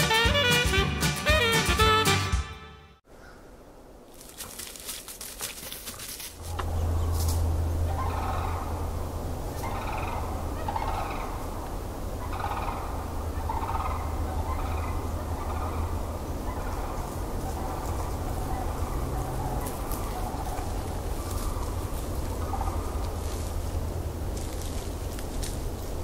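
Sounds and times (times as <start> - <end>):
steady low hum: 6.3 - 26.0
cranes calling: 6.5 - 23.8.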